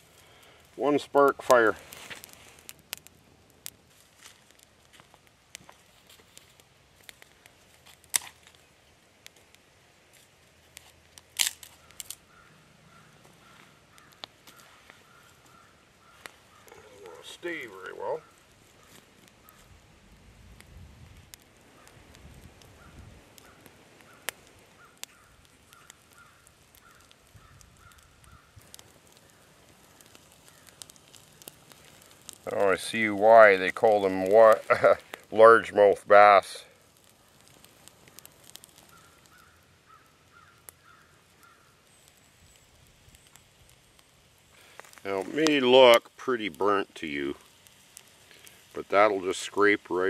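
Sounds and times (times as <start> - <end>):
dry wood cracking: 0.0 - 50.0
bird calling: 11.8 - 19.7, 22.8 - 28.6, 38.9 - 43.4.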